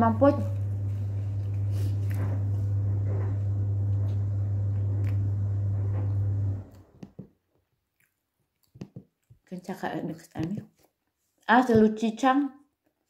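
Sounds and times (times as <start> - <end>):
steady low hum: 0.0 - 7.0
chewing: 7.7 - 9.5.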